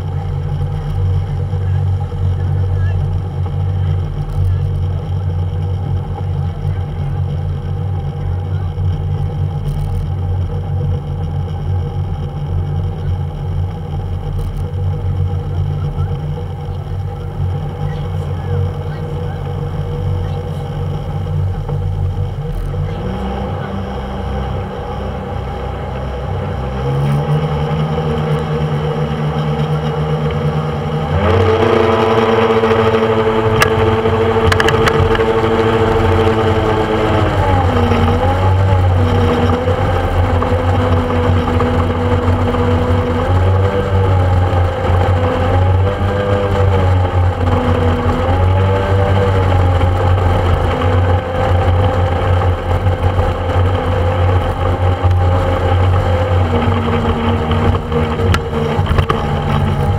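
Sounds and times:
speedboat engine running: 0.0s - 59.9s.

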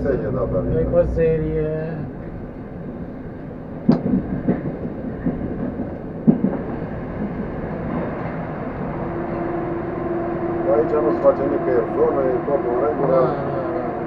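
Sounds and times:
train wheels rumbling on rail: 0.0s - 14.0s
wheels clacking on track: 2.1s - 13.0s.

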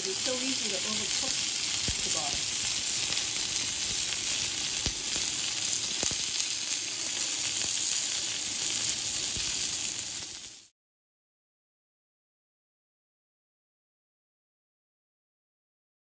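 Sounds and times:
meat sizzling on a grill pan: 0.0s - 10.7s.

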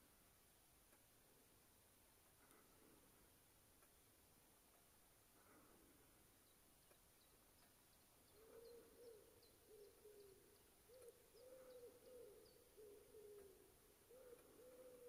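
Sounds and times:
faint high bird chirps: 6.4s - 15.0s
soft low animal hooting: 8.4s - 15.0s.

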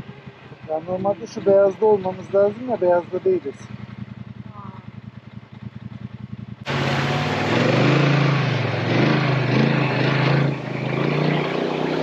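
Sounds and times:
atv engine running: 0.0s - 12.0s
creek water rushing: 6.7s - 12.0s.

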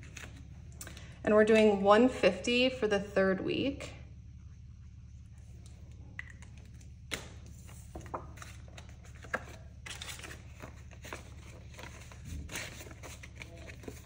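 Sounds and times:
steady low hum: 0.0s - 14.0s
paper banknotes rustling: 7.4s - 14.0s.

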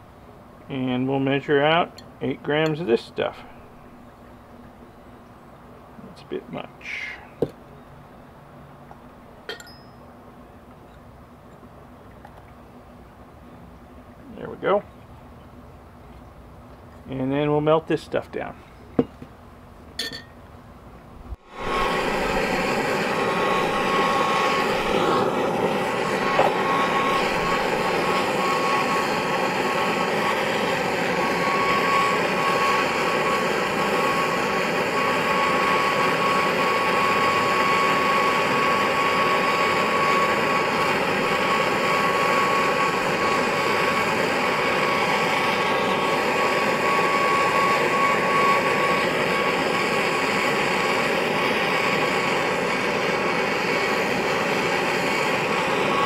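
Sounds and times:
torch flame hissing: 21.4s - 56.0s
thin steady whistle: 21.5s - 56.0s.

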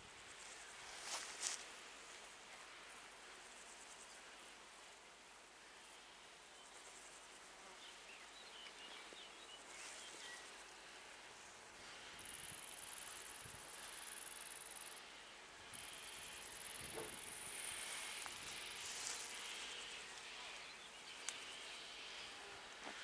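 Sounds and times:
insect chirring: 12.2s - 15.0s, 15.7s - 20.1s.

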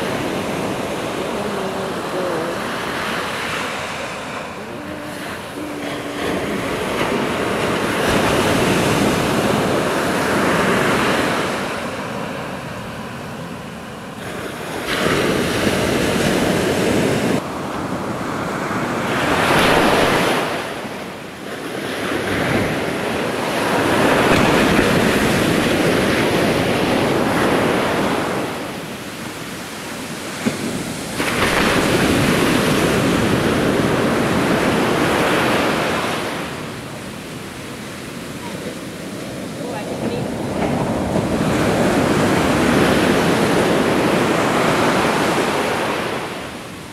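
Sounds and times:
surf breaking on beach: 0.0s - 46.9s
wind buffeting microphone: 22.0s - 46.4s.

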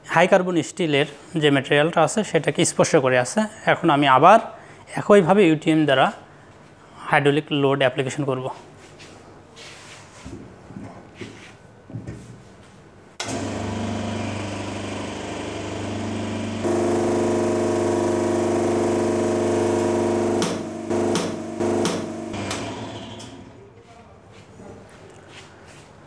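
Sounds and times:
hydraulic pump motor humming: 13.2s - 23.6s.

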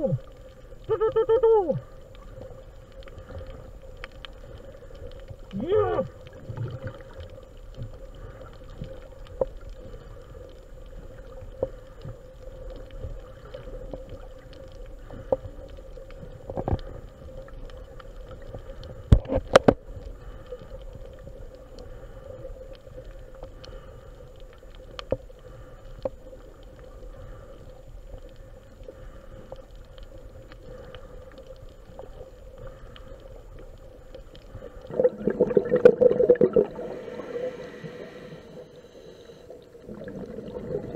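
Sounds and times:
crackling clicks: 0.0s - 40.9s
steady underwater hum: 0.0s - 40.9s
bubbling rush: 34.5s - 38.8s, 39.8s - 40.9s.

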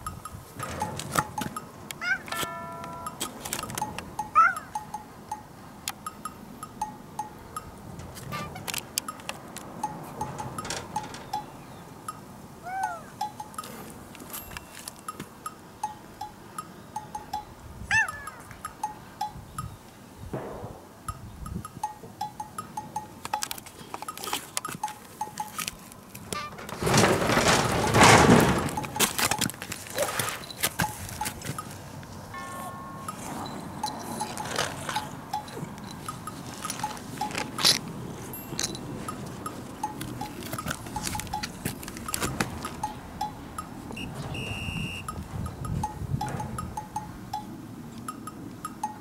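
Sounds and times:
rustles: 23.0s - 46.6s
bell-like clinking: 32.3s - 43.8s.

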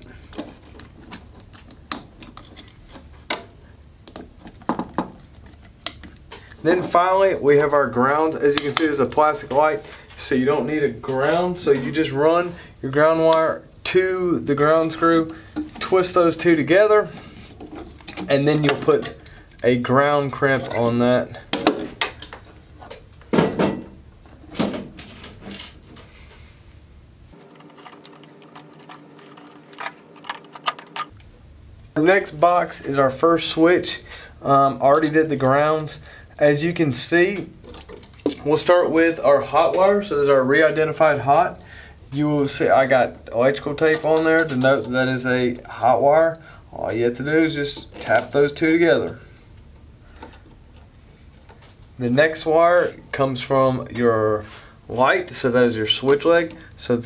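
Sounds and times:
wires clicking and rustling: 0.1s - 7.1s, 13.0s - 23.4s, 27.3s - 31.3s, 37.2s - 38.7s, 41.3s - 45.8s, 47.1s - 52.8s.

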